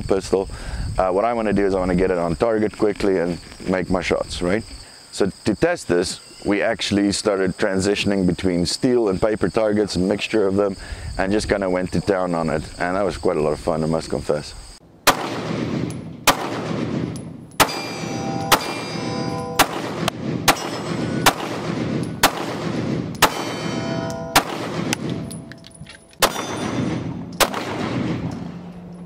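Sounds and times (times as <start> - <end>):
pistol shots: 15.0 - 25.5, 26.2 - 28.8
steel targets clanging: 17.2 - 19.7, 23.2 - 27.1.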